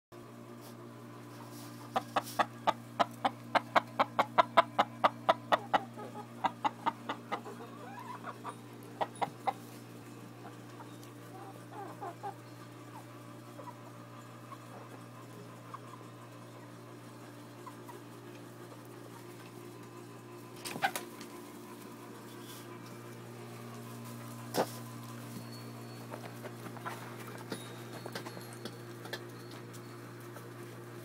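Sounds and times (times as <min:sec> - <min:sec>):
chickens clucking: 0:01.2 - 0:31.0
soft chicken calls: 0:01.7 - 0:09.7.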